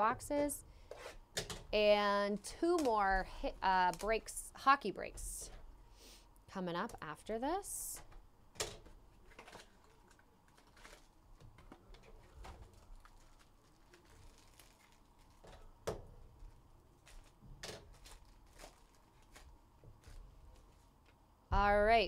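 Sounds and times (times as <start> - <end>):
card pack crinkling and tearing: 9.3 - 11.2, 12.6 - 15.5, 16.9 - 20.7.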